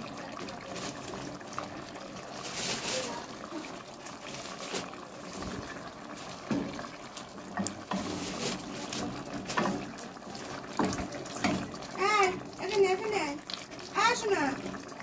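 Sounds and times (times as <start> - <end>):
gravy simmering hiss: 0.0 - 15.0
spatula scraping and knocking pan: 7.5 - 13.0.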